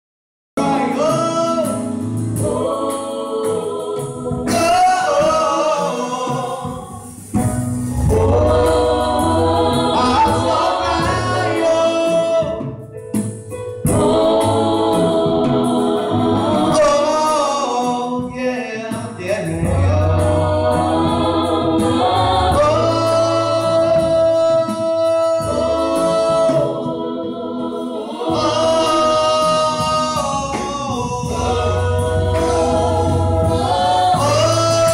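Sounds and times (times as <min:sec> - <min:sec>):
gospel singers: 0:00.6 - 0:34.9
low bass accompaniment: 0:07.0 - 0:17.5, 0:18.3 - 0:34.9.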